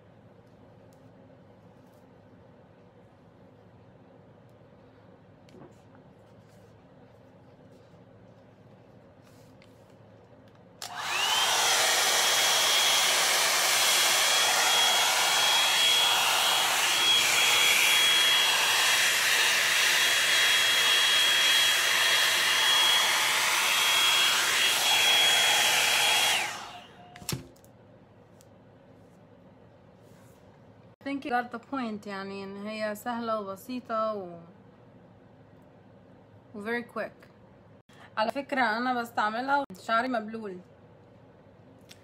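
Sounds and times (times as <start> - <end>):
hot-air brush motor whining: 10.8 - 27.2.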